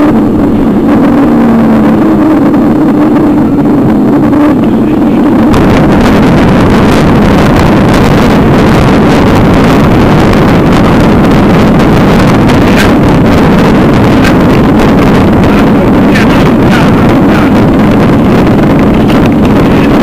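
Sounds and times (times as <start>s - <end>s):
wind and road vibration rumble: 0.0s - 20.0s.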